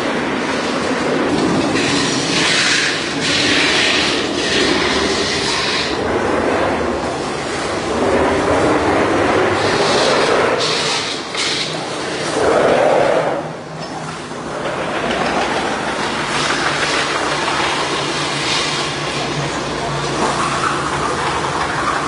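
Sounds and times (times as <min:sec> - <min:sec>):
lathe mechanical rumble: 0:00.0 - 0:22.0
metal hissing and scraping: 0:01.6 - 0:06.0, 0:09.6 - 0:14.3, 0:16.1 - 0:19.5.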